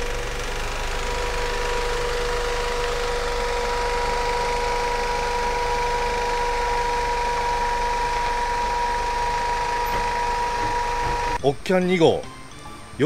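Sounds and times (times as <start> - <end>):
van engine running at low speed: 0.0 - 13.0.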